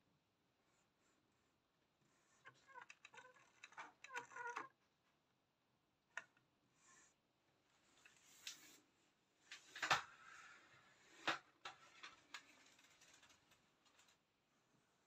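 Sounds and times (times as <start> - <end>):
soft rustle: 7.6 - 11.2.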